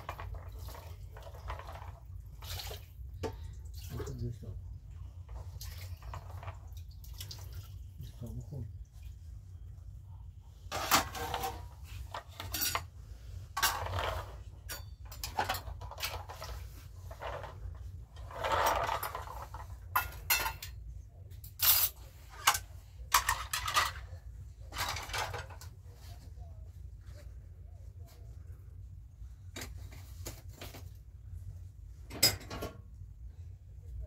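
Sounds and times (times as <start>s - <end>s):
dishes clattering on a rack: 10.7s - 12.9s, 18.5s - 20.8s, 32.1s - 32.8s
rattling scrape: 10.7s - 12.9s, 13.5s - 20.4s.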